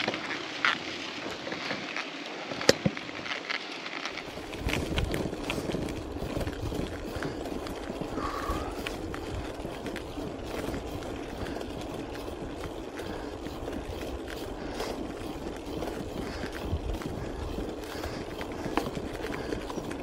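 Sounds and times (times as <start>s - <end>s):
bicycle tyres on asphalt: 0.0s - 20.0s
wind rushing over microphone: 4.2s - 20.0s.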